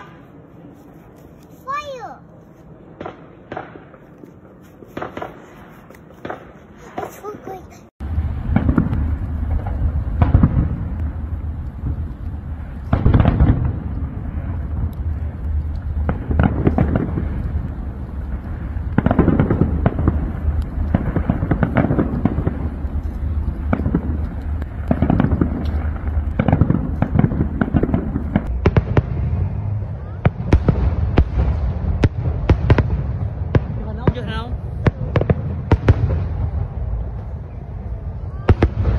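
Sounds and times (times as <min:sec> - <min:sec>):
firework shell bursts and crackling: 0:02.9 - 0:29.1
heavy firework bangs: 0:05.0 - 0:37.2, 0:38.2 - 0:38.9
low rumble: 0:08.0 - 0:38.9.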